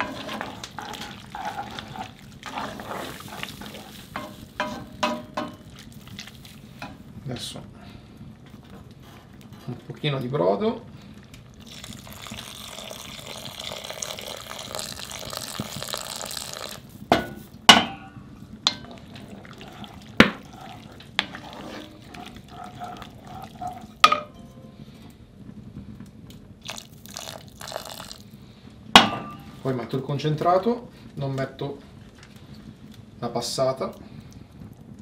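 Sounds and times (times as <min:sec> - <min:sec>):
broth pouring into pot: 0:00.0 - 0:09.6, 0:10.7 - 0:25.3, 0:26.5 - 0:30.0
wooden spoon knocking pot: 0:04.2 - 0:05.7.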